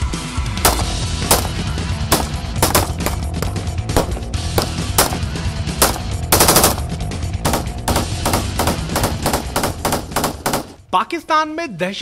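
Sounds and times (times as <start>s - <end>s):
rifle gunshots: 0.6s - 10.8s
rapid gunfire burst: 0.7s - 3.2s, 4.7s - 10.8s.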